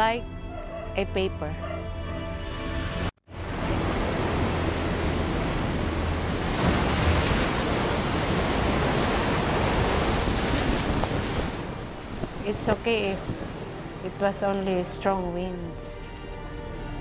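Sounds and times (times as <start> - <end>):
floodwater rushing with spray: 3.3 - 14.1
typhoon wind rushing: 3.4 - 14.2.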